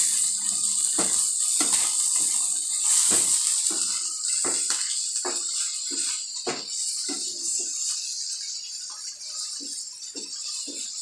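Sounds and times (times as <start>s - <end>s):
food sizzling in frying pan: 0.0s - 11.0s.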